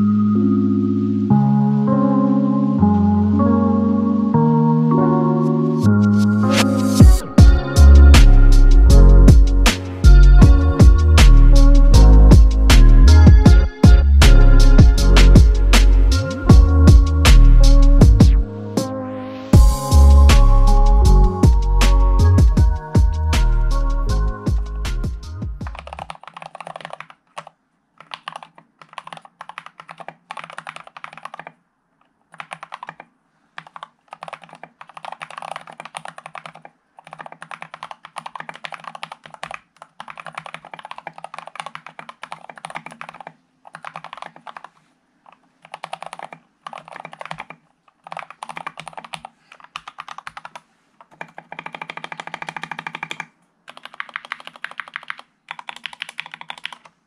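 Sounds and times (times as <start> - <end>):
mechanical keyboard typing: 25.6 - 31.6, 32.2 - 57.0.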